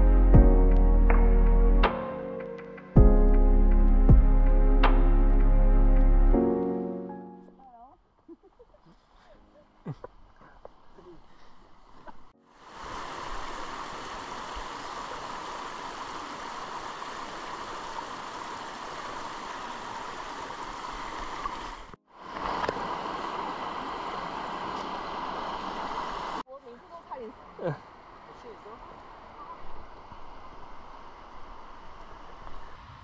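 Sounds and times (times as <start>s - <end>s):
stream running over rocks: 9.8s - 32.9s.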